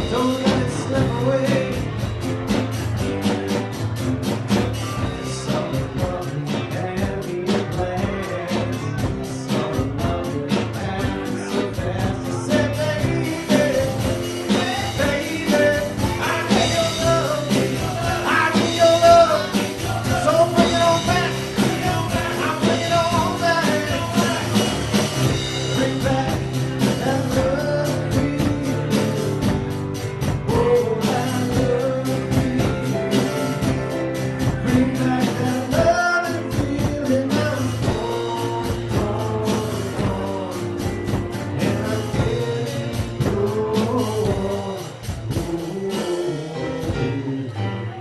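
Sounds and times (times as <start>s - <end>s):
person singing lead vocal: 0.0s - 2.4s, 4.8s - 48.0s
rock band playing: 0.0s - 48.0s.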